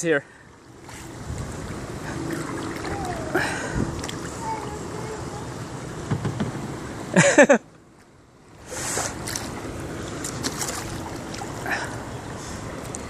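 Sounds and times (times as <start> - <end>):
wind: 0.0 - 13.0
river current rushing: 0.9 - 5.0
small splashes and drips: 1.3 - 4.4, 10.1 - 12.0.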